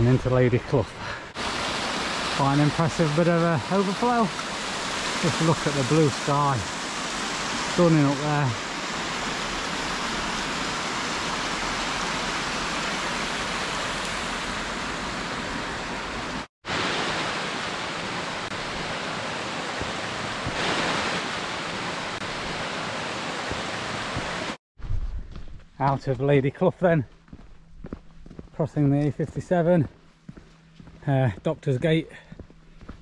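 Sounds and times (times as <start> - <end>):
stream water cascading: 1.3 - 24.6.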